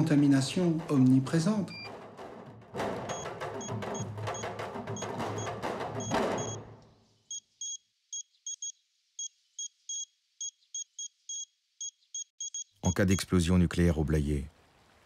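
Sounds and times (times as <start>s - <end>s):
drum-heavy music: 0.0s - 6.8s.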